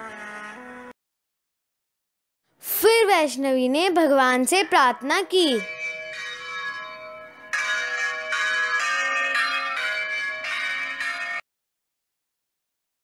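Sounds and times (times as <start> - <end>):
bells ringing: 4.4 - 11.4.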